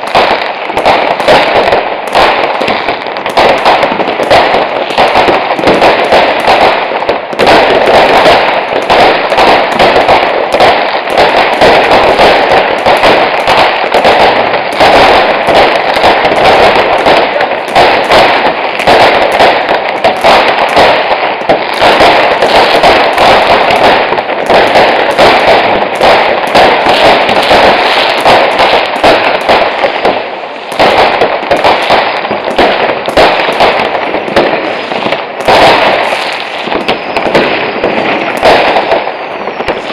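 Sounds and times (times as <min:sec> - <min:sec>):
fireworks and firecrackers banging: 0:00.0 - 0:39.9.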